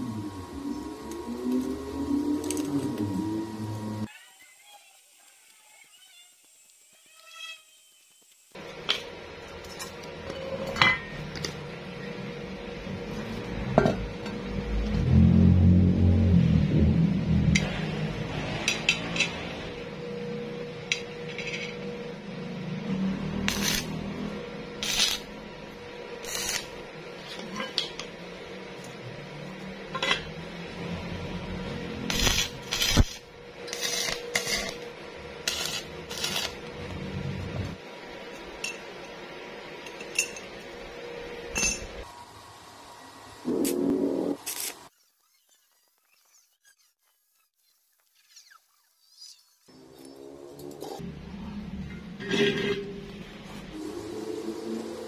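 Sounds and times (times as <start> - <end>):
metal scraping: 31.6 - 37.7, 50.5 - 54.2.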